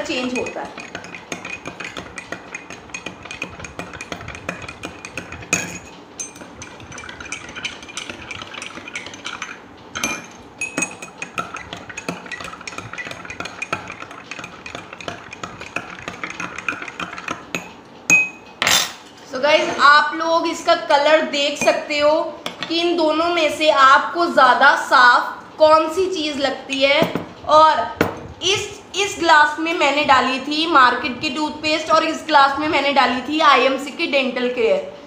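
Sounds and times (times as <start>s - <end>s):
metal spoons clinking in glasses: 0.1s - 19.0s
spoon knocking on glass: 0.3s - 18.4s.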